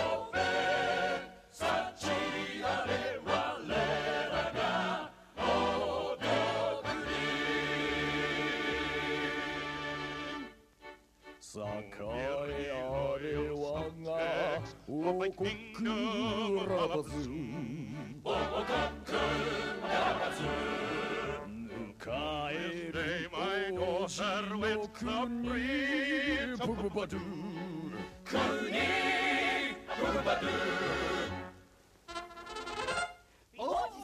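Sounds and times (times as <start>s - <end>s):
men singing operatically: 0.0s - 10.0s, 11.4s - 31.4s
orchestral accompaniment: 28.3s - 33.3s.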